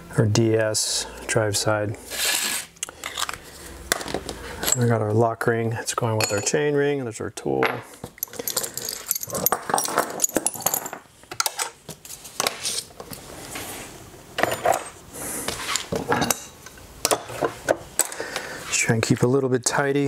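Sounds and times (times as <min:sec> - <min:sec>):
metal hand tools clinking: 0:08.2 - 0:11.0.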